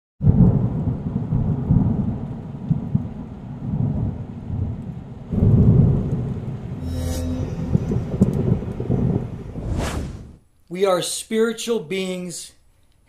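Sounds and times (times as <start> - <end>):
thunder rumbling: 0.2 - 6.9, 7.5 - 10.4.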